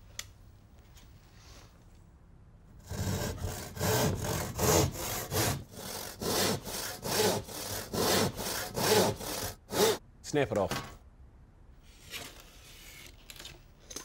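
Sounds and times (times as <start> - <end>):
handsaw cutting plasterboard: 2.8 - 10.0.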